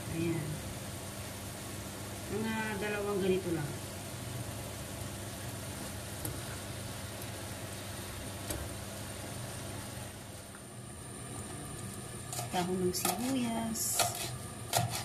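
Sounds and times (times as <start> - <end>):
food sizzling in a pan: 0.0 - 15.0
steady low hum: 0.0 - 15.0.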